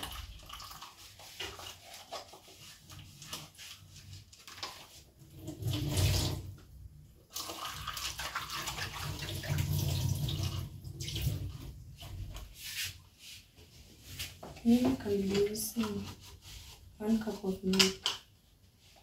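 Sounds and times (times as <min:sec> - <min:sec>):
tap water splashing into sink: 0:07.3 - 0:12.4.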